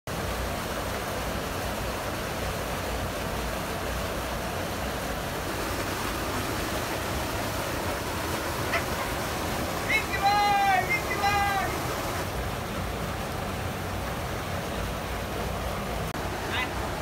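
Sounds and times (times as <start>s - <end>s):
water rushing over a weir: 0.1s - 17.0s.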